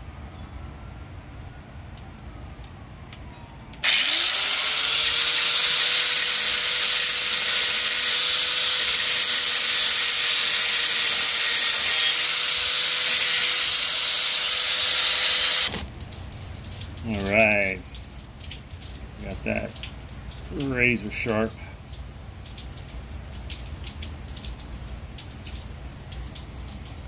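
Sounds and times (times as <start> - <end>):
angle grinder whine: 3.8 - 15.8
grinder grinding steel blade: 3.8 - 15.8.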